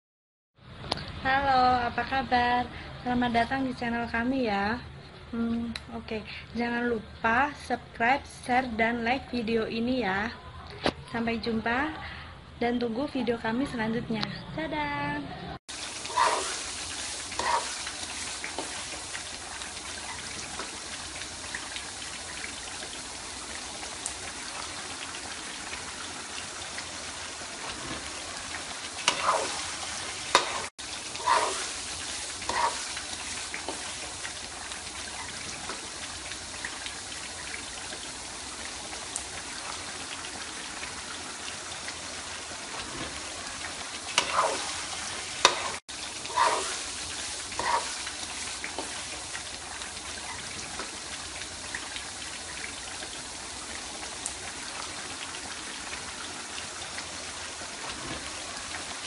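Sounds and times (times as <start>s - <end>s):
stirring in a wok: 15.7s - 20.9s, 28.9s - 35.9s, 44.0s - 50.8s
vegetables sizzling in hot oil: 15.7s - 59.0s.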